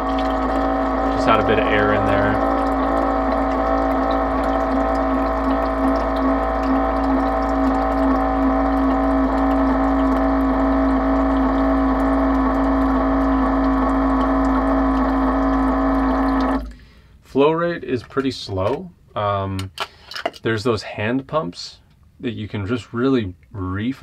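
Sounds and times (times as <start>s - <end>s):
water pouring into glass jar: 0.0s - 16.9s
electric water pump humming: 0.0s - 17.3s.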